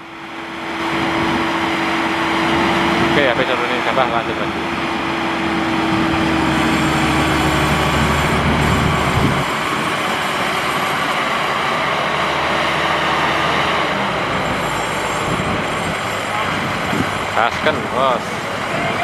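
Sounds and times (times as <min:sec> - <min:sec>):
combine harvester diesel engine: 0:00.0 - 0:19.0
threshing machinery noise: 0:00.0 - 0:19.0.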